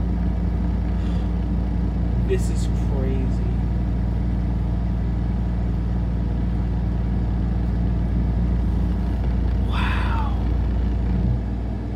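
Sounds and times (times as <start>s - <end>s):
low rumble: 0.0s - 11.9s.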